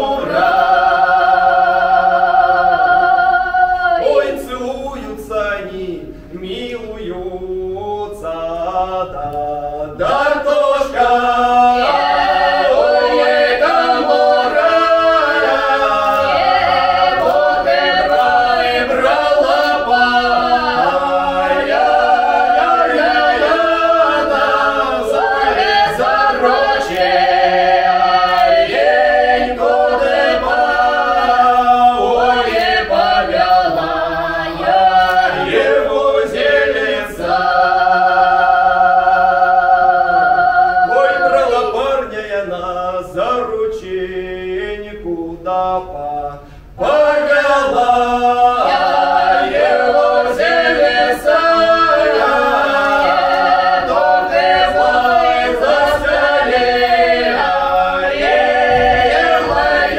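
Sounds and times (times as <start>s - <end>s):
voices singing in harmony: 0.0s - 59.9s.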